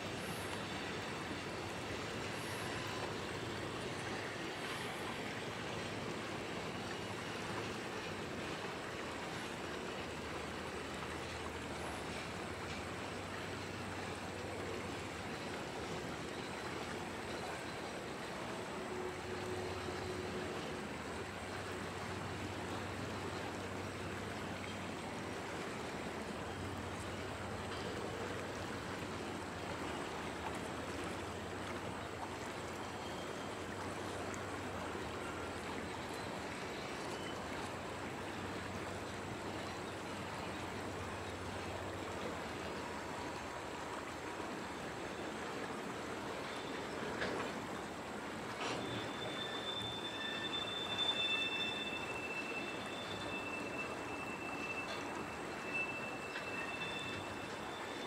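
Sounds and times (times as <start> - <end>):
train wheels rolling on rail: 0.0 - 32.0, 45.5 - 58.0.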